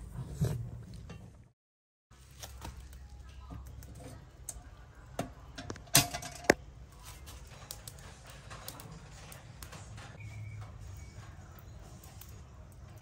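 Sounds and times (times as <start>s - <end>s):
metal pot clanking on wire grill: 5.2s - 6.6s.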